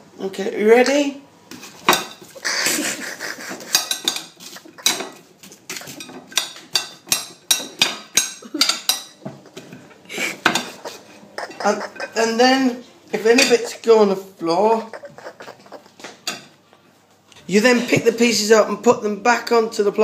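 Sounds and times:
knife scraping plate: 1.6 - 7.0, 9.0 - 12.6, 13.2 - 13.9
knife clacking on plate: 3.6 - 9.7.

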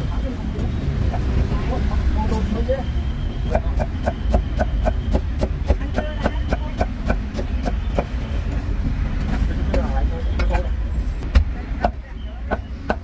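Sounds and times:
low traffic rumble: 0.0 - 13.0
cleaver chopping meat on wood: 3.5 - 8.1, 11.3 - 13.0.

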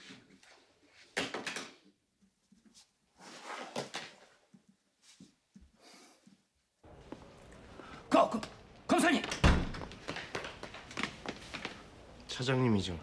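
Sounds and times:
objects scraping and rustling on desk: 2.7 - 4.4.

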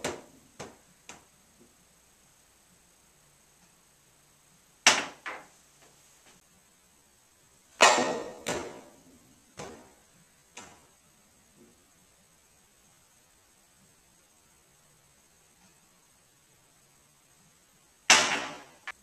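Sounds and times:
pool balls knocking: 0.0 - 1.2, 4.9 - 5.6, 7.8 - 10.0.

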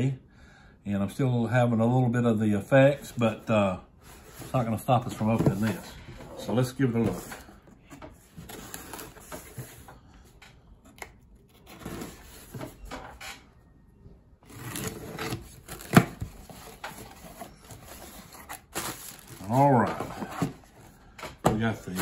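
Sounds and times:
knife cutting packing tape: 14.5 - 16.3
tape tearing: 14.5 - 17.2.

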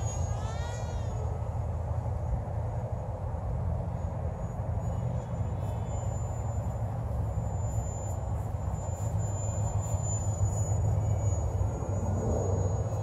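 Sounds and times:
model plane motor whine: 4.0 - 13.0.

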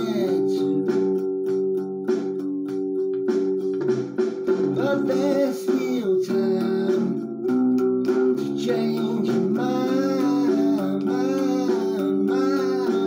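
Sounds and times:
person singing: 0.0 - 1.3, 4.7 - 7.5, 8.3 - 13.0
guitar: 0.0 - 13.0.

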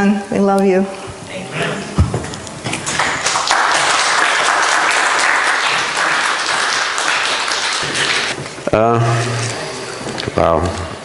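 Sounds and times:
crowd applauding: 2.8 - 8.4.

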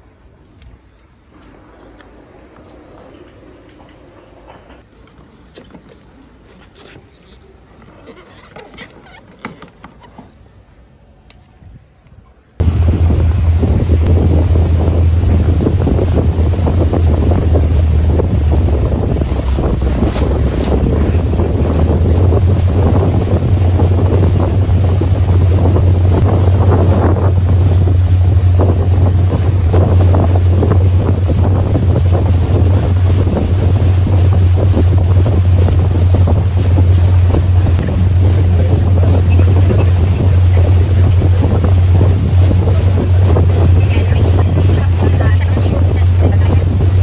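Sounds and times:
boat engine droning: 12.6 - 47.0
wind buffeting microphone: 12.6 - 47.0.

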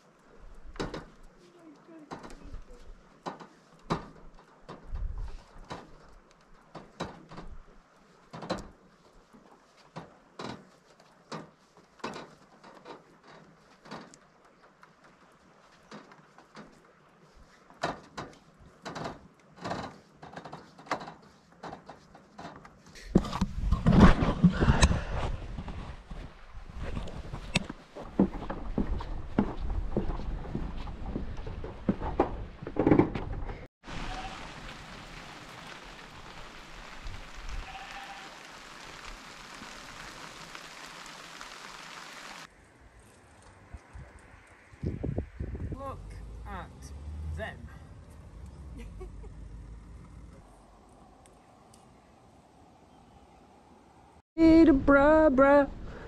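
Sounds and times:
steady rain falling: 33.8 - 42.6.

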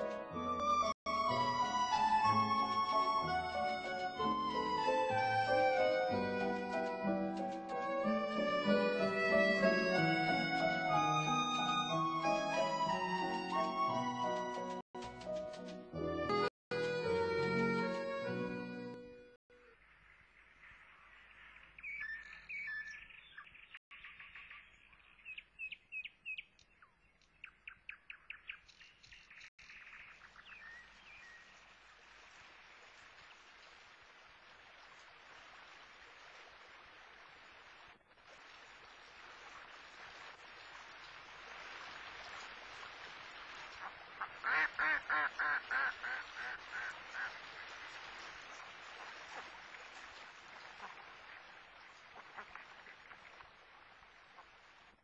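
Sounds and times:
songbirds chirping and trilling: 20.0 - 31.5
flowing river water: 29.6 - 55.0
duck quacking: 44.2 - 47.4.

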